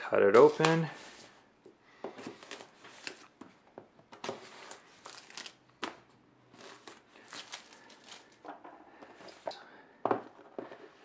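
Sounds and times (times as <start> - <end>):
plastic shrink-wrap crinkling: 4.4 - 5.6, 6.6 - 8.4.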